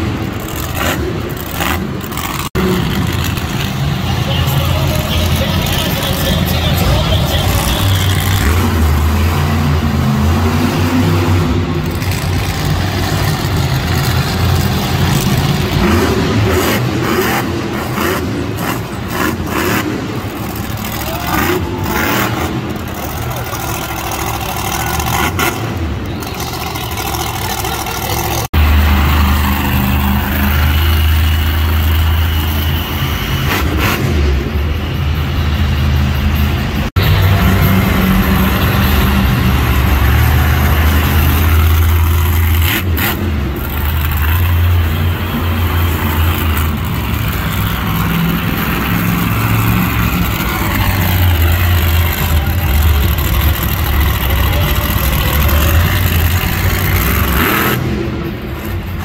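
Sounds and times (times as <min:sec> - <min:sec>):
truck engine revving: 0:00.0 - 0:59.0.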